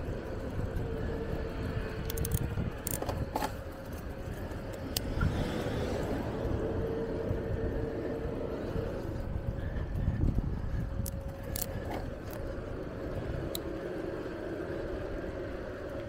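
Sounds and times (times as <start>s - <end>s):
bicycle clicks and rattles: 0.0s - 16.0s
bicycle tyres rumbling on road: 0.0s - 16.0s
faint steady hum: 0.0s - 16.0s
wind on microphone: 0.0s - 16.0s.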